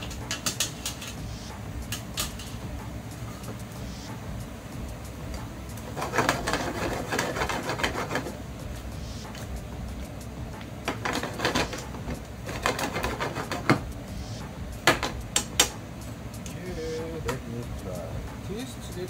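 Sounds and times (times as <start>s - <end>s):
frying pan shaken on a burner: 5.8s - 8.4s
wooden utensil scraping a pan: 5.9s - 8.4s.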